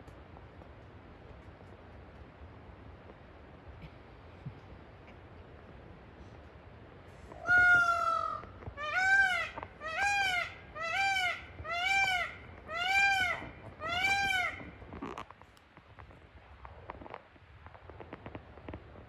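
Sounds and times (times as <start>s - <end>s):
peacock calling: 7.4s - 14.8s.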